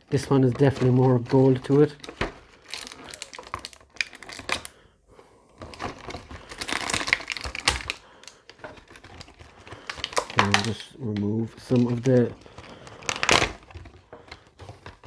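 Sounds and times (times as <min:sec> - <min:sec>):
plastic and cardboard crinkling: 0:00.0 - 0:15.0.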